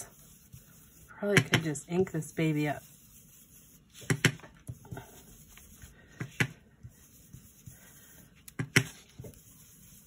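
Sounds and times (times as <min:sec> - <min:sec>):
brush tapping on cardstock: 0:01.3 - 0:01.8.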